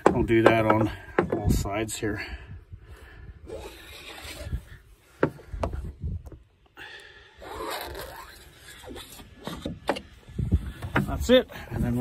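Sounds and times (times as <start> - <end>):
scraper blade scraping plastic: 7.4 - 9.8.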